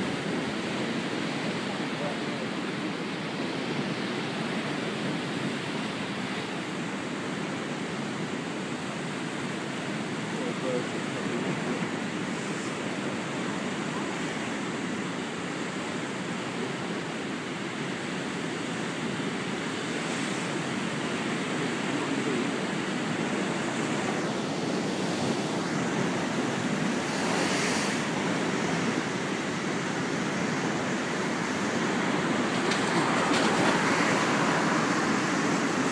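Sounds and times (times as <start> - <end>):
storm surf breaking: 0.0 - 35.9
breaking wave hiss: 10.3 - 35.9.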